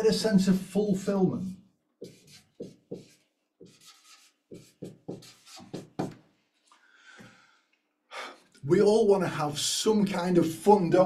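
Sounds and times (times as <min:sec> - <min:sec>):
marker pen scratching on paper: 0:02.0 - 0:06.7.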